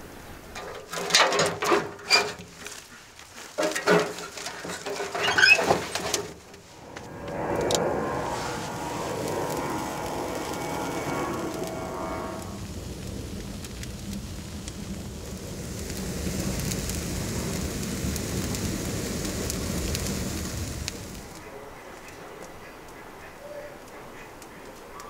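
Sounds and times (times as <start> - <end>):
wood fire crackling in a stove: 0.0 - 25.0
loud knocks and clatters: 3.6 - 6.6.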